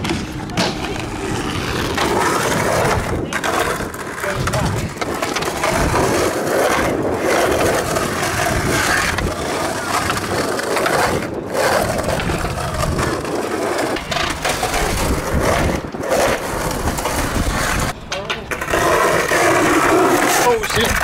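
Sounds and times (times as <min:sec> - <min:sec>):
skateboard wheels rolling on pavement: 0:00.0 - 0:21.0.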